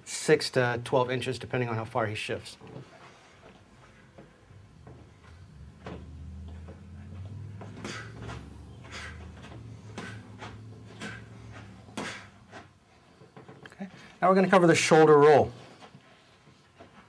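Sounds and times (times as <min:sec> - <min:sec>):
steady low hum: 0:02.7 - 0:14.2.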